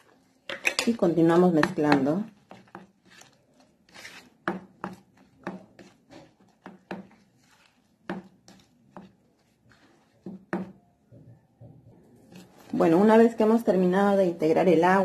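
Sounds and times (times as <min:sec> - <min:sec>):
dough scraper knocking and slapping: 0:01.5 - 0:02.9, 0:04.0 - 0:07.3, 0:08.0 - 0:09.1, 0:10.2 - 0:10.8.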